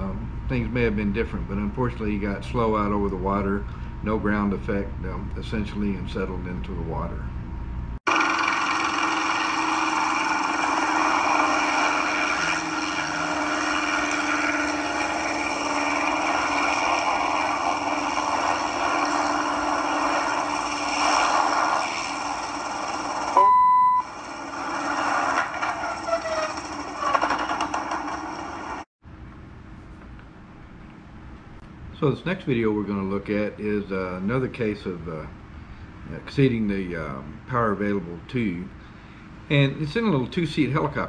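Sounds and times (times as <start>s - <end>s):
beep: 23.4s - 24.1s.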